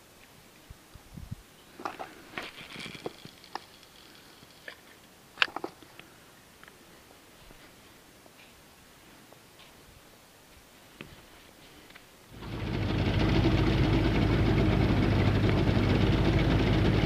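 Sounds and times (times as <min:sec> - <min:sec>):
reel bail clicking: 0:01.8 - 0:06.8.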